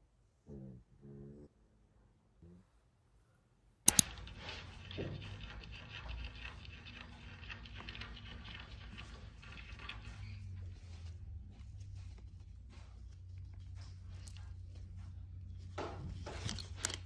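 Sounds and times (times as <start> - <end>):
sharp clicks: 3.9 - 8.3.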